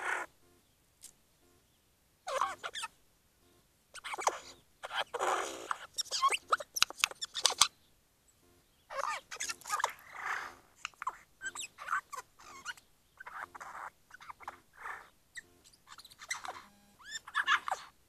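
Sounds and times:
jay mimicking clicks and whistles: 0:04.0 - 0:07.7.

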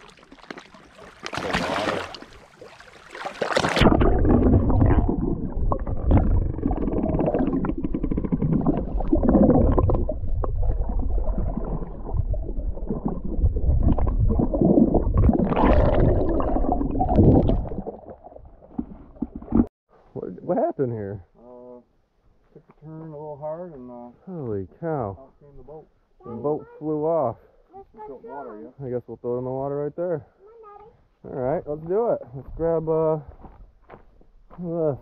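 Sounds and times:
microphone splashing into water: 0:00.0 - 0:19.7
muffled underwater gurgling rumble: 0:03.8 - 0:19.7.

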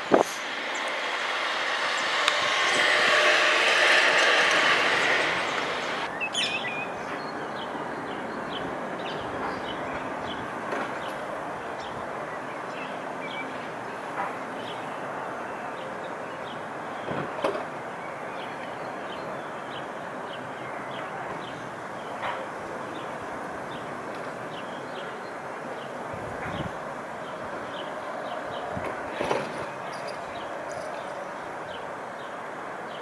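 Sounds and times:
distant rumble: 0:00.0 - 0:06.1
jet engines roaring: 0:00.0 - 0:17.7.

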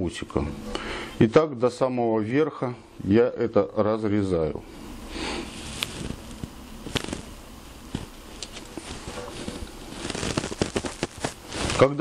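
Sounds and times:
netting rustling: 0:05.4 - 0:12.0.

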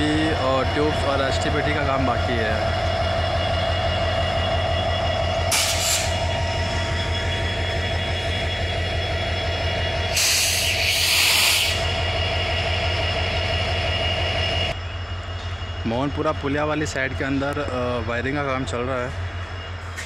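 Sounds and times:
diesel locomotive engine drone: 0:00.0 - 0:20.0
air hissing: 0:05.5 - 0:06.2, 0:10.1 - 0:11.9.

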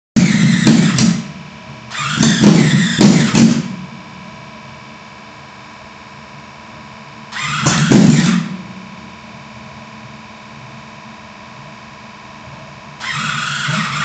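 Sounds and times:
engine revving and idling: 0:00.2 - 0:03.8, 0:07.3 - 0:08.6, 0:13.0 - 0:14.0.

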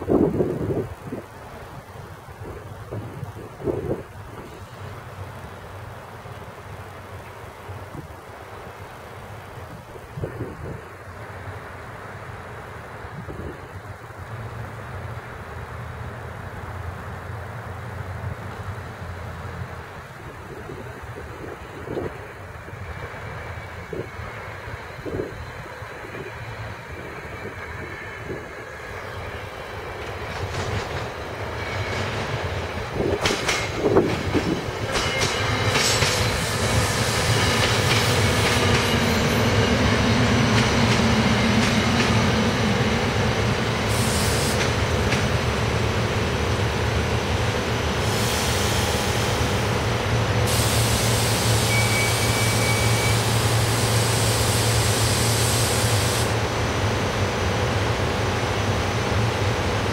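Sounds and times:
train passing: 0:00.0 - 0:59.9
wheel clacks over rail joints: 0:29.9 - 0:36.4.

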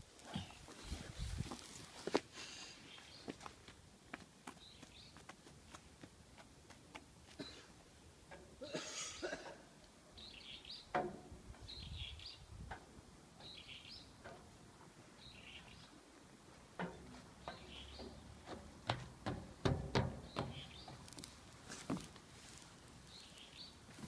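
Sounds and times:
child footsteps on wood: 0:00.3 - 0:02.3, 0:03.2 - 0:07.5, 0:16.4 - 0:24.0
bird calling: 0:17.4 - 0:18.2
knocks on wooden play structure: 0:18.9 - 0:20.7.

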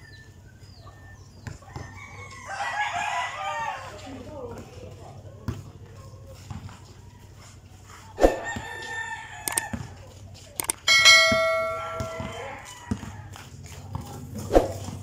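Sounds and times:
rooster crowing: 0:01.0 - 0:04.3, 0:08.3 - 0:10.0, 0:11.0 - 0:13.5
basketball bouncing on concrete: 0:11.3 - 0:13.2.

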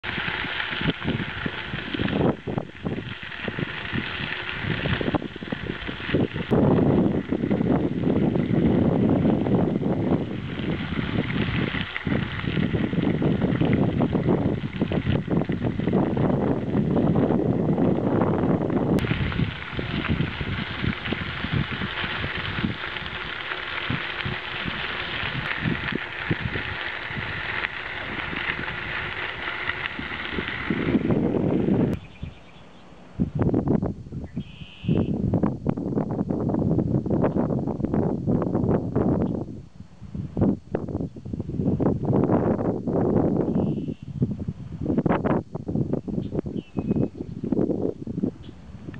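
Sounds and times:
bicycle tyres rolling on gravel: 0:00.0 - 0:32.6, 0:33.2 - 0:48.9
wind buffeting microphone: 0:00.0 - 0:48.9.

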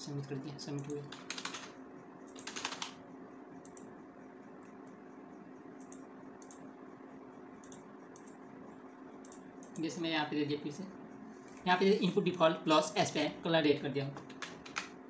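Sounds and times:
faint steady hum: 0:00.0 - 0:15.0
computer mouse clicks: 0:00.7 - 0:03.0, 0:03.6 - 0:03.9, 0:05.8 - 0:06.7, 0:07.6 - 0:08.4, 0:09.2 - 0:09.9, 0:14.2 - 0:15.0
computer keyboard clicks: 0:00.8 - 0:01.7, 0:02.3 - 0:03.0, 0:05.8 - 0:06.6, 0:07.6 - 0:08.4, 0:09.2 - 0:09.9, 0:14.2 - 0:15.0.

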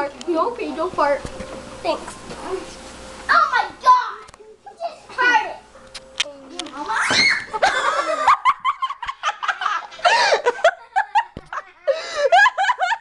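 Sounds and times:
people laughing: 0:07.5 - 0:13.0.

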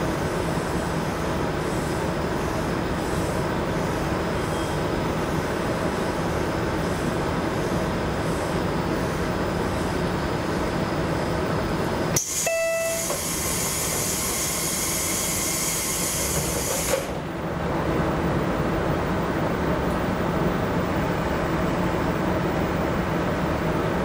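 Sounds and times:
brief tone: 0:04.4 - 0:04.8, 0:12.2 - 0:13.3
air hiss of door engine: 0:12.2 - 0:17.2.

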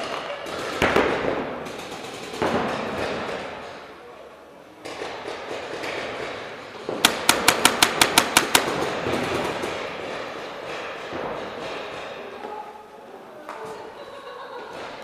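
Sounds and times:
paintball marker firing: 0:04.9 - 0:09.8.

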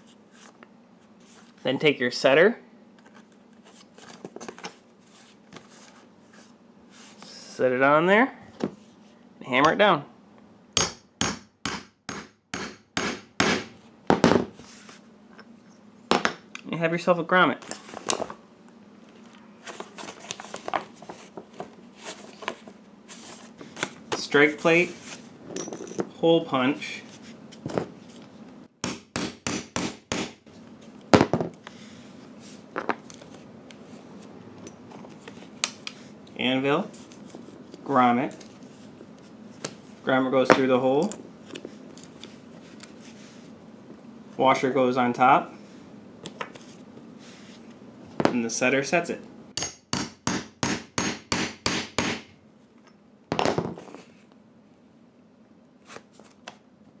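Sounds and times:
hammer striking hole punch: 0:10.8 - 0:14.2, 0:28.8 - 0:30.4, 0:49.6 - 0:52.3.

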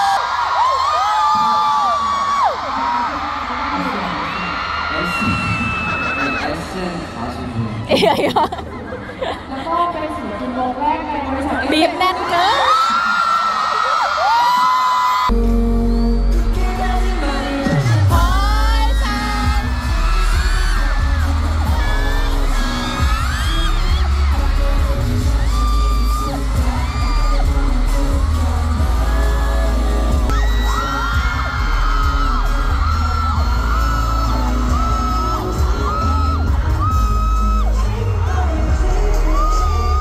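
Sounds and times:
fans whooping and screaming: 0:00.0 - 0:07.0, 0:12.2 - 0:40.0
pop music with heavy bass: 0:15.3 - 0:40.0.

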